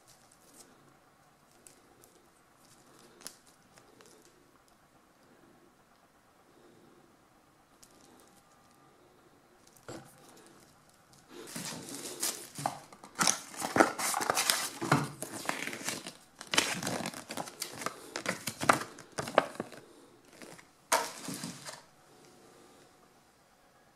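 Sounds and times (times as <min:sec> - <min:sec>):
plastic bag crinkling: 0:09.6 - 0:21.9
paper rustling: 0:09.9 - 0:21.9.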